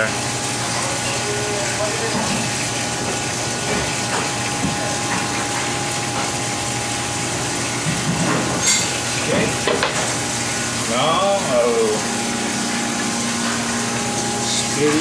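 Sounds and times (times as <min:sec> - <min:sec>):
kitchen machinery whir and hum: 0:00.0 - 0:15.0.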